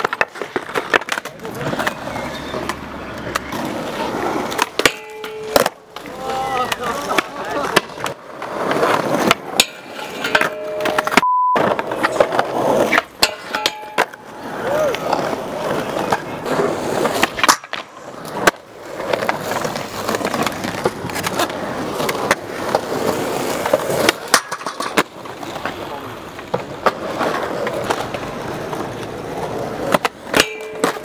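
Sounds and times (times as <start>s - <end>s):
skateboard popping and landing: 0.0s - 31.0s
skateboard wheels rolling on concrete: 0.0s - 31.0s
censor bleep: 10.6s - 11.8s.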